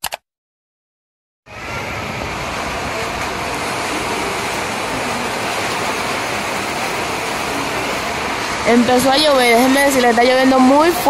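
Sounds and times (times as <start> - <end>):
heavy rain pouring: 1.5 - 11.0.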